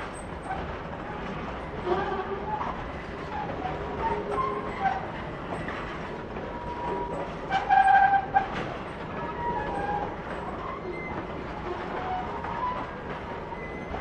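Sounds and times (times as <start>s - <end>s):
train wagons rolling: 0.0s - 14.0s
wheels clattering over rail joints: 0.0s - 14.0s
metallic wheel squeal: 6.6s - 8.4s, 13.5s - 14.0s.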